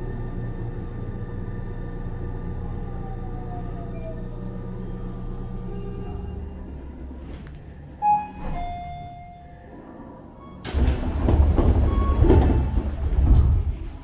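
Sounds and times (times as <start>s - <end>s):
train doors sliding open: 6.3s - 14.0s.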